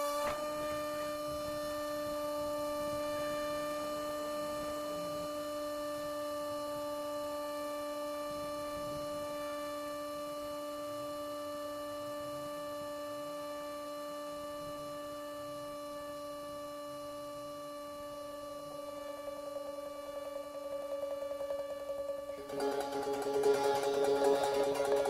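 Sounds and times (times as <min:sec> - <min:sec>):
model plane motor whine: 0:00.0 - 0:25.0.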